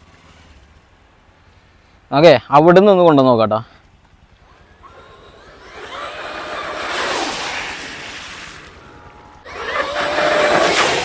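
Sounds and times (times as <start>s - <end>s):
electric motor whining: 4.5s - 11.0s.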